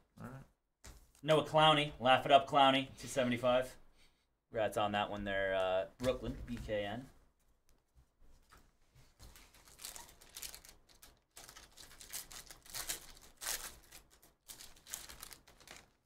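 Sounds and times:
foil wrapper crinkling and tearing: 9.3s - 16.0s.

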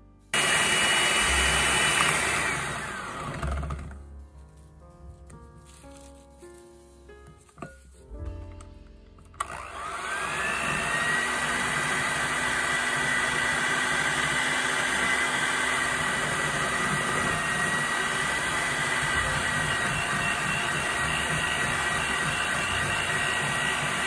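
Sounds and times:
electric hand mixer whining: 0.4s - 4.0s, 9.4s - 24.0s.

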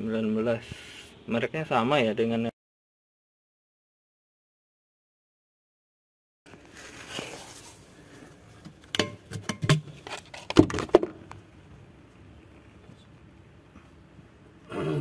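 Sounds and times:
soft handling hiss: 6.5s - 8.8s.

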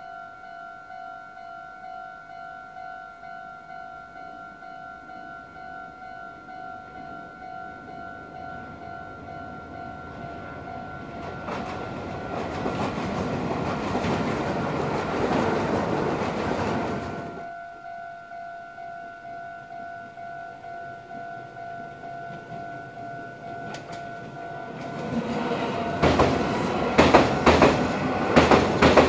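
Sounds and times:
level-crossing warning bell: 0.0s - 29.0s
train rumbling over bridge: 6.4s - 17.5s, 20.6s - 29.0s
wheels clacking over rail joints: 8.5s - 17.4s, 21.4s - 29.0s.

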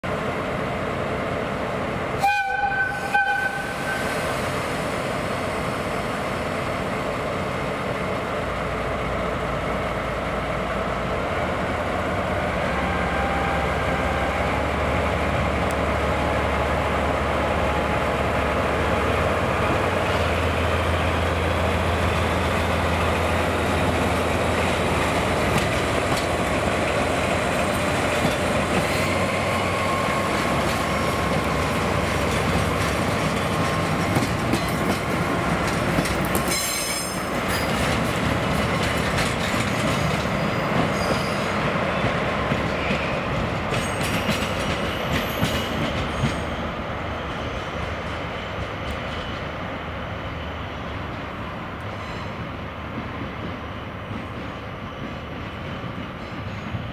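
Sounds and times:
wheels clicking over rail joints: 30.3s - 41.1s
high wheel squeal: 40.0s - 41.6s.

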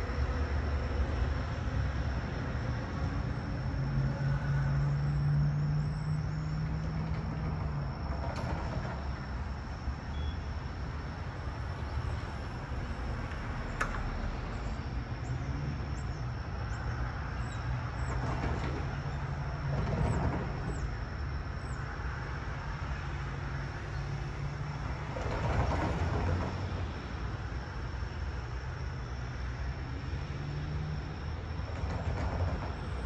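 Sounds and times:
low rumble of vehicles: 0.0s - 33.0s
faint high whine: 10.1s - 10.6s.

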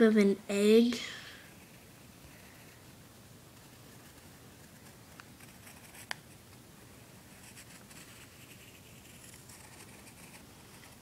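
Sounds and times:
pencil scratching on paper: 1.6s - 2.8s, 3.6s - 6.1s, 7.3s - 11.0s.

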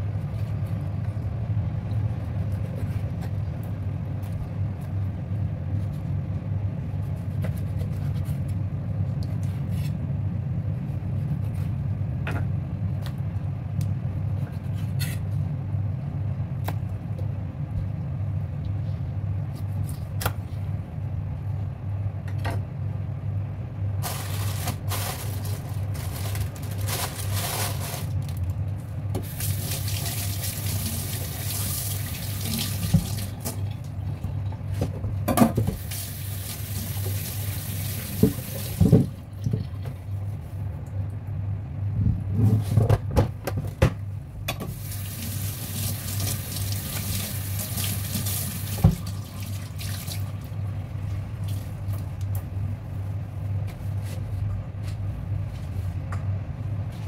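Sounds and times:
steady low hum: 0.0s - 45.5s, 48.9s - 57.0s
tap water running into sink: 29.2s - 33.3s, 35.8s - 39.1s, 44.7s - 50.2s.

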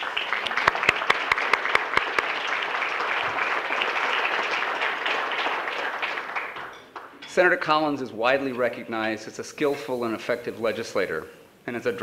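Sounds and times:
audience applauding: 0.0s - 7.2s
sharp individual claps: 0.0s - 7.3s.

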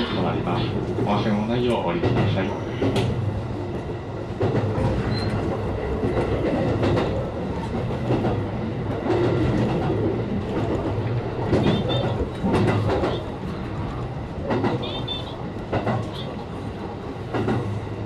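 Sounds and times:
train wheels rumbling: 0.0s - 18.0s
wheels clacking over rail joints: 4.4s - 16.4s.

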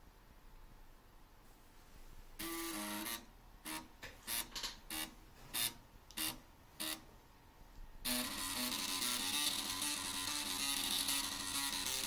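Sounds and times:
floppy drive motors buzzing notes: 2.4s - 7.1s, 8.0s - 12.0s.

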